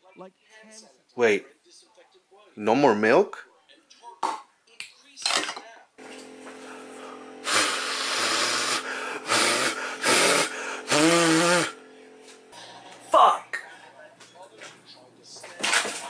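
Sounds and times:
man gasping: 6.7s - 11.7s.

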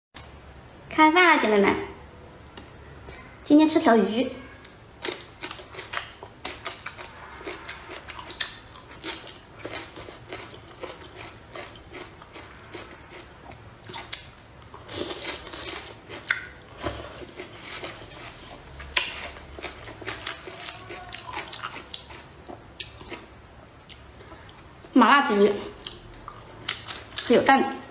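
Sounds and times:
person chewing food: 4.6s - 24.9s, 25.7s - 27.3s.

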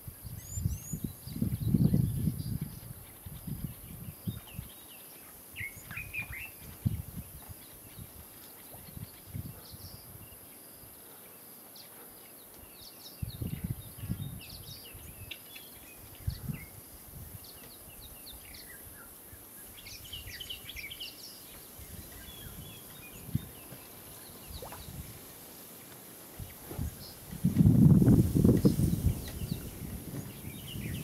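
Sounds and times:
small birds chirping: 0.2s - 31.0s
steady high hiss: 13.9s - 31.0s.

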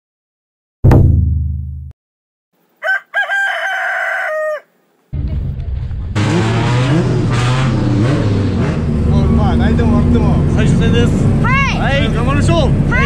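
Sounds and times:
rooster crowing: 2.8s - 4.8s
voices: 9.0s - 13.0s.

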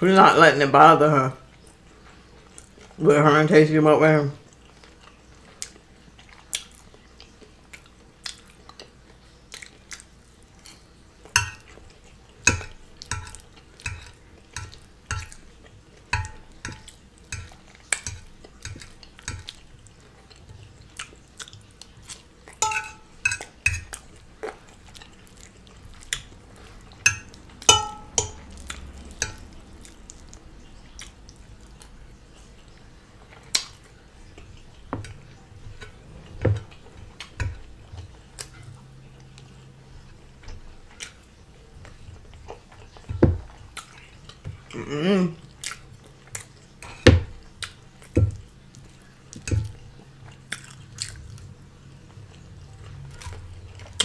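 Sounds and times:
fork clinking on ceramic platter: 11.4s - 11.8s, 12.5s - 15.4s, 16.2s - 19.5s, 22.6s - 23.9s, 27.0s - 29.5s.

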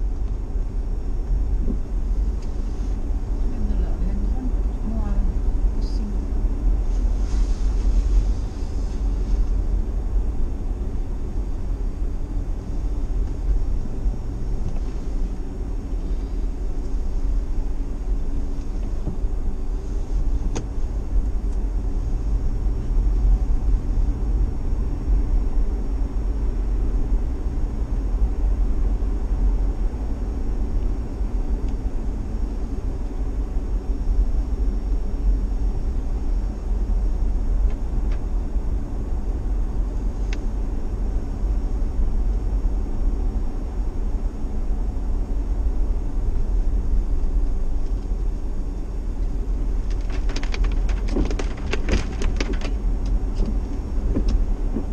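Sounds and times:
car driving on wet road: 0.0s - 32.8s, 49.2s - 54.9s
faint steady hum: 0.0s - 54.9s.

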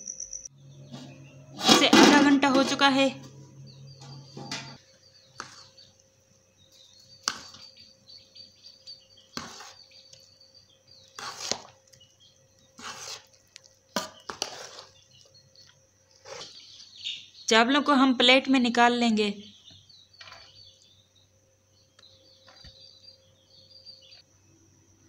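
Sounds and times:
metal ladle scraping a pot: 14.0s - 15.0s.

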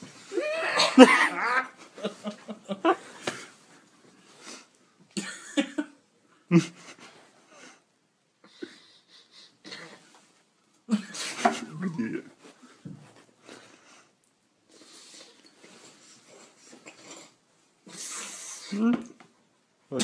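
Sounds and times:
breathy wheezing laughter: 8.4s - 10.2s
person muttering: 11.6s - 12.3s, 18.7s - 19.1s.

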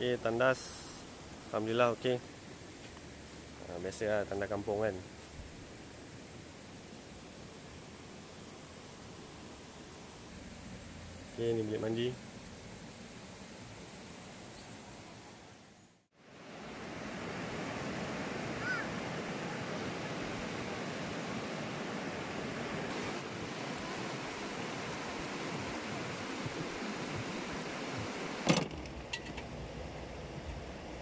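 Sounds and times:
flowing water rushing: 16.3s - 28.5s.

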